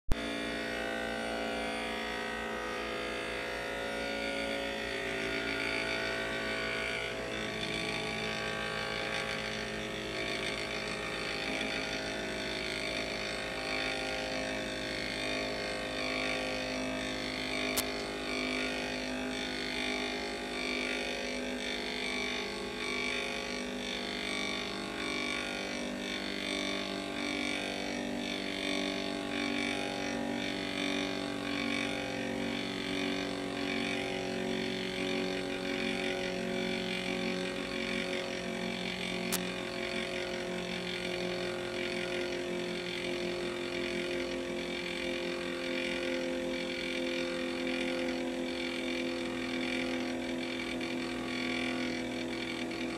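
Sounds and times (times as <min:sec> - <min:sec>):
gyroscope whirring hum: 0:00.1 - 0:52.9
sharp click: 0:17.6 - 0:18.7, 0:38.9 - 0:40.4.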